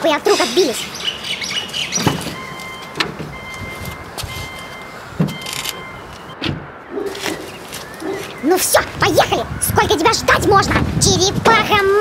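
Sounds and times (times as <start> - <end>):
high electronic warning tone: 2.3 - 6.4.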